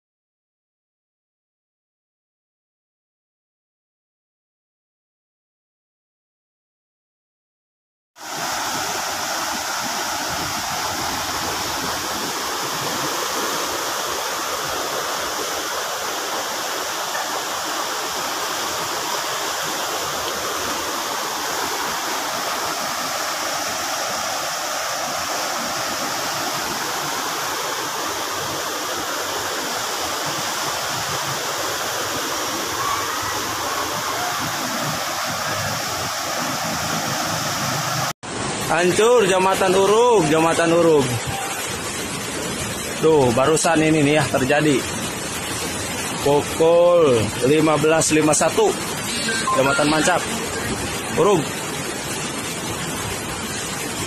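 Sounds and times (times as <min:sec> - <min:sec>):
floodwater rushing: 0:08.2 - 0:54.0.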